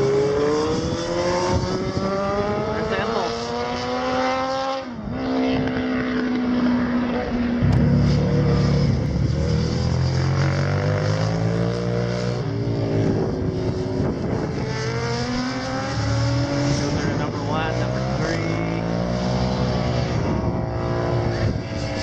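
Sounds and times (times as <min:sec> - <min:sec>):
racing motorcycles passing: 0:00.0 - 0:22.0
loud low engine note: 0:07.6 - 0:10.4.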